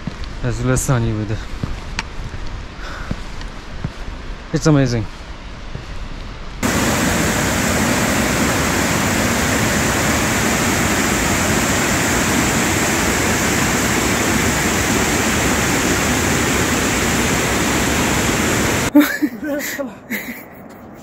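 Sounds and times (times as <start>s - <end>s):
fast-flowing water rushing: 6.6s - 18.9s.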